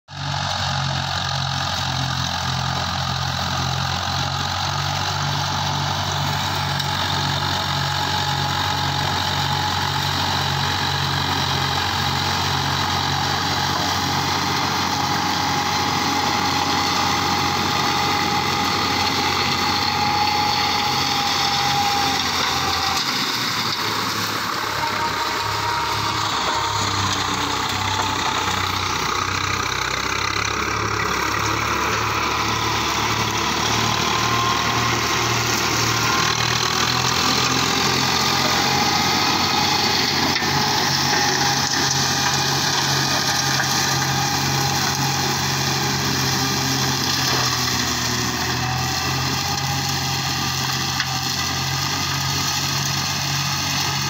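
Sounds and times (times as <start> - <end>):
tractor diesel engine: 0.0 - 54.0
mulcher chopping sugarcane: 29.5 - 54.0.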